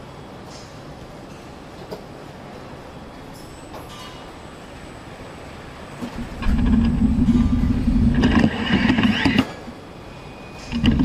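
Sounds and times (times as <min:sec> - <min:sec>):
motor buzz with whine: 0:06.2 - 0:09.6, 0:10.7 - 0:11.0.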